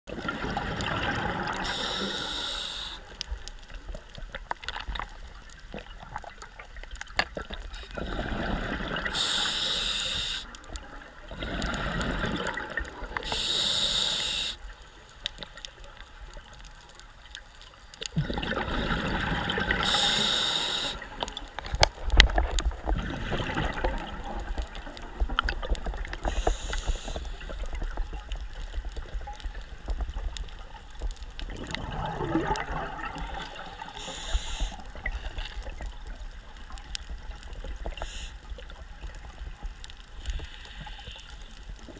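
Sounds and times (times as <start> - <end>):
low rumble of water: 0.0 - 13.8, 14.6 - 41.9
bubbling hiss: 0.2 - 3.4, 7.4 - 15.0, 18.1 - 21.9, 22.8 - 30.3, 31.4 - 35.9, 37.2 - 39.1
diver breathing through regulator: 1.6 - 3.1, 7.8 - 10.6, 13.2 - 14.6, 18.7 - 21.2, 26.2 - 27.5, 33.8 - 35.0.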